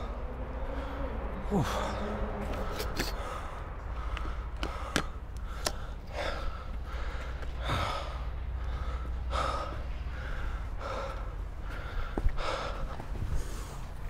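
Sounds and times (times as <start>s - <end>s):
person breathing hard: 0.0s - 14.0s
skateboard wheels rolling on pavement: 1.9s - 8.2s.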